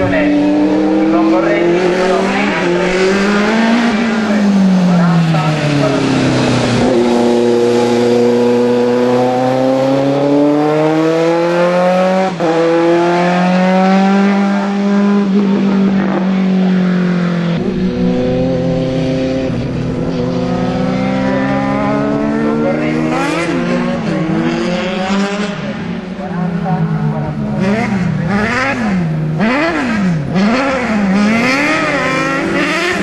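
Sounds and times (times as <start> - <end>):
racing car engine at full throttle: 0.0 - 33.0.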